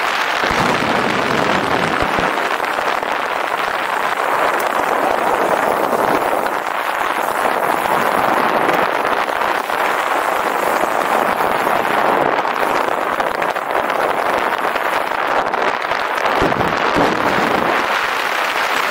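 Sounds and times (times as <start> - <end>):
rolling rumble of ride: 0.0 - 18.9
wind rushing on microphone: 0.0 - 18.9.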